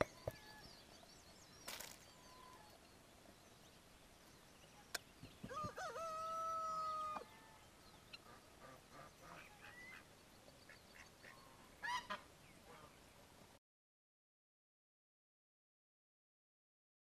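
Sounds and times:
rooster crowing: 0:05.5 - 0:07.6
fowl squawk: 0:08.2 - 0:10.0, 0:11.0 - 0:12.9.

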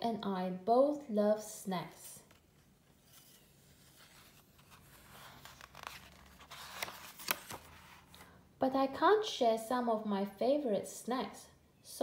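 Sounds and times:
paper page rustling: 0:02.3 - 0:08.2.

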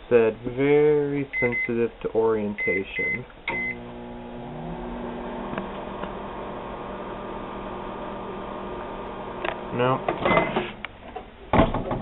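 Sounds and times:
microwave electrical hum: 0:00.7 - 0:11.0
microwave keypad beeping: 0:01.4 - 0:01.7, 0:02.6 - 0:03.8.

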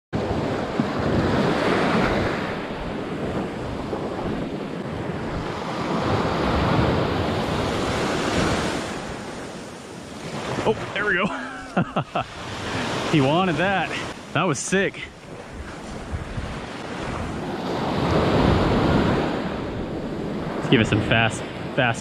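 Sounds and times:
surf washing onto sand: 0:00.2 - 0:22.0.

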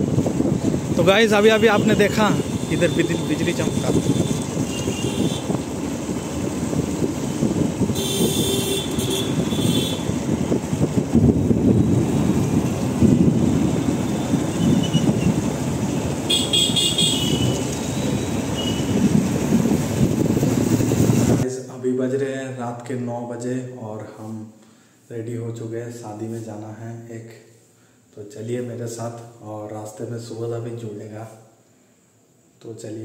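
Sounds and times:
motorcycle engine and road rumble: 0:00.0 - 0:21.4
vehicle horn honking: 0:01.6 - 0:05.6, 0:07.9 - 0:10.2, 0:14.1 - 0:15.2, 0:16.3 - 0:19.0.

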